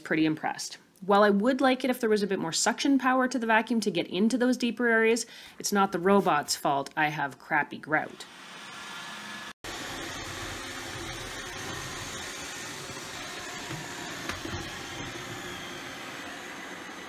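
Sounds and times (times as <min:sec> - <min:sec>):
robot vacuum whirring: 0:08.2 - 0:17.0.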